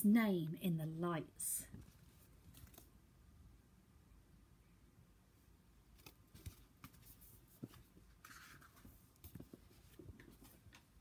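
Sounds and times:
paper pages rustling: 0:01.8 - 0:03.0, 0:05.9 - 0:11.0.

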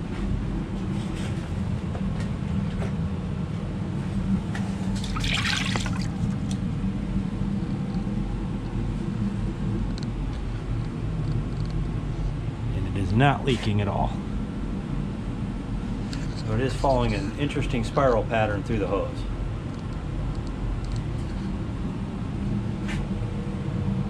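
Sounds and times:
steady low hum: 0:00.0 - 0:24.0
water draining into bucket: 0:05.0 - 0:06.5.

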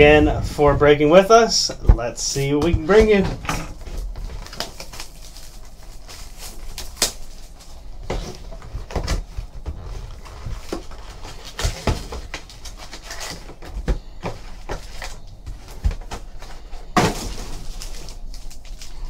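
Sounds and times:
foil packs crackling: 0:02.3 - 0:19.0
plastic wrap crinkling and tearing: 0:03.1 - 0:13.7, 0:14.6 - 0:19.0.

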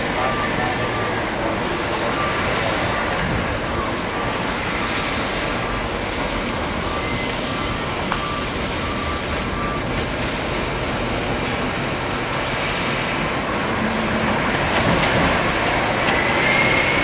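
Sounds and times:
faint whine: 0:00.0 - 0:17.0
large machine running: 0:00.0 - 0:17.0.

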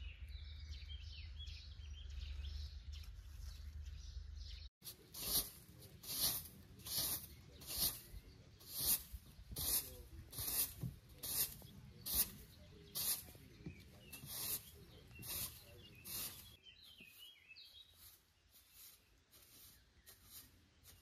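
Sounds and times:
broom sweeping brick steps: 0:04.8 - 0:21.0
faint bird chirps: 0:06.8 - 0:21.0.

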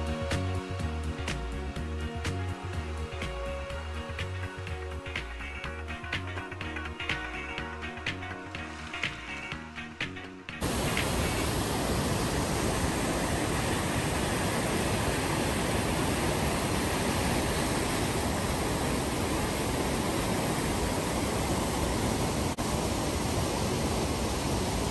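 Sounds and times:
whitewater roaring over rocks: 0:10.6 - 0:24.9.

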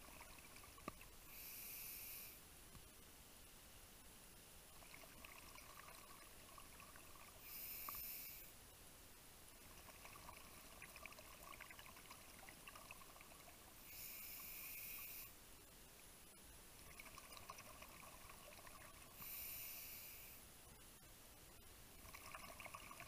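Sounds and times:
exhaled bubbles: 0:00.0 - 0:01.0, 0:04.8 - 0:07.6, 0:09.6 - 0:13.7, 0:16.8 - 0:19.2, 0:22.0 - 0:23.0
underwater regulator breathing: 0:01.3 - 0:02.4, 0:07.3 - 0:08.5, 0:13.8 - 0:15.4, 0:19.1 - 0:20.4.

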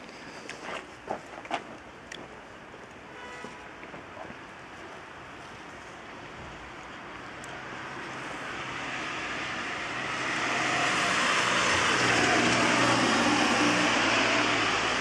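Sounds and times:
car passing on wet road: 0:07.2 - 0:15.0.

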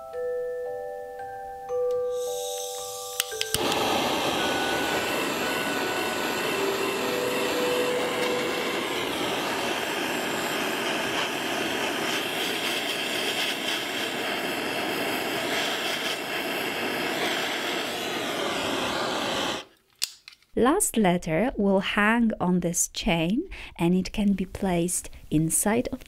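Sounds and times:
gas torch hissing: 0:02.1 - 0:19.7.

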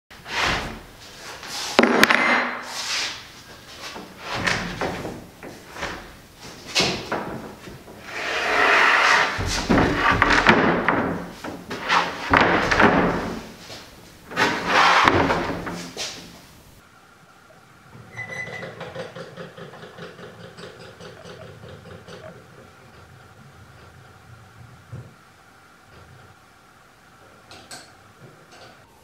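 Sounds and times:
plywood sheets scraping: 0:00.2 - 0:16.8
wooden boards knocking: 0:01.8 - 0:02.6, 0:09.2 - 0:13.6, 0:14.3 - 0:16.0.

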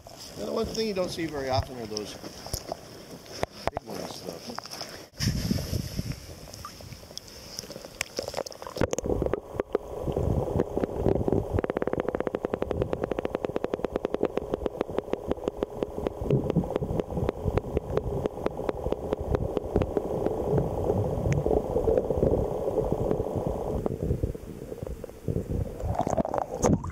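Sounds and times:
low underwater rumble: 0:08.2 - 0:26.9
rapid even ticking: 0:08.6 - 0:20.7.

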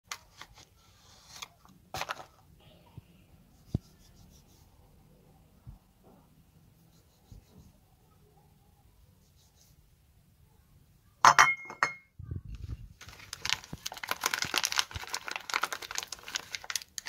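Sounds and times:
paper wrapper crinkling: 0:00.1 - 0:02.4, 0:12.6 - 0:17.0.

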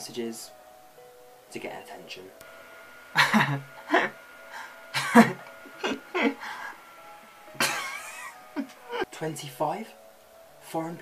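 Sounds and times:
faint music: 0:00.0 - 0:11.0
man chuckling and giggling: 0:03.2 - 0:04.2, 0:05.0 - 0:06.4, 0:07.6 - 0:09.0.

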